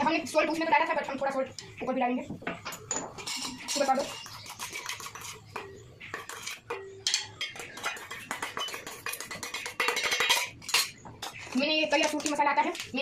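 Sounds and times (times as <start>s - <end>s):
spoon clinking and scraping in bowl: 2.7s - 12.9s.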